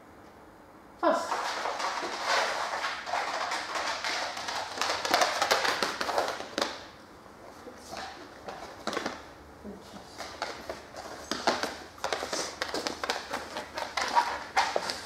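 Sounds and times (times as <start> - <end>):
dog claws tapping on concrete: 1.4 - 6.9, 10.2 - 15.0.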